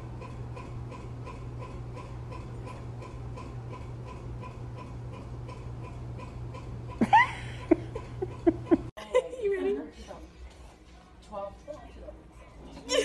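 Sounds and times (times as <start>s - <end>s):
steady ticking: 0.0s - 8.9s.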